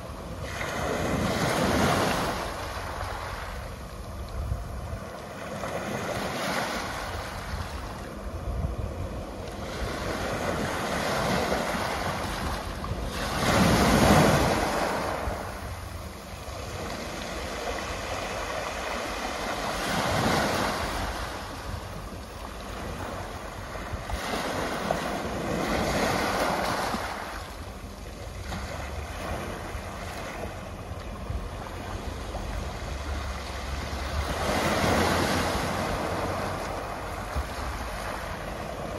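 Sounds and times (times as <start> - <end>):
waves washing up pebble beach: 9.6 - 15.7, 16.6 - 21.6, 22.7 - 27.5.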